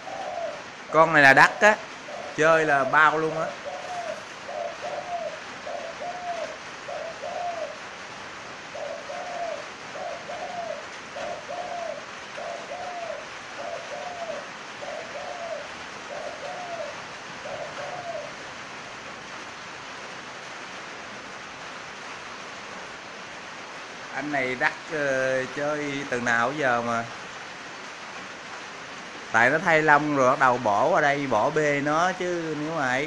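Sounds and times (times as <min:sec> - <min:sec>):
dove cooing: 0:00.0 - 0:18.6
steady hiss: 0:00.0 - 0:33.0.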